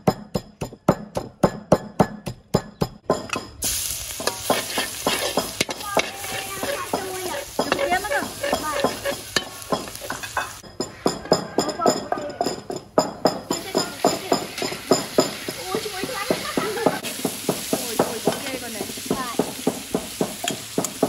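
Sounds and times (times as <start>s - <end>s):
pestle pounding in wooden mortar: 0.0s - 3.6s, 4.2s - 21.0s
garlic sizzling in hot oil: 3.6s - 10.6s, 13.4s - 21.0s
metal spatula scraping wok: 3.6s - 11.4s, 13.6s - 21.0s.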